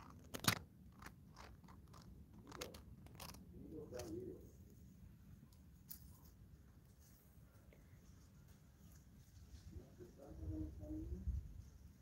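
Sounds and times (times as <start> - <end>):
dry twigs crunching: 0.0 - 3.4.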